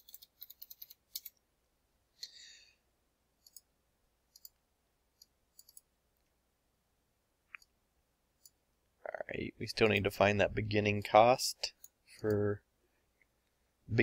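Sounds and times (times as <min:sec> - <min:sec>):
computer keyboard typing: 0:00.0 - 0:01.4, 0:05.2 - 0:05.9
soft mouse clicks: 0:03.4 - 0:03.7, 0:04.3 - 0:04.6, 0:05.2 - 0:06.3, 0:07.5 - 0:07.8.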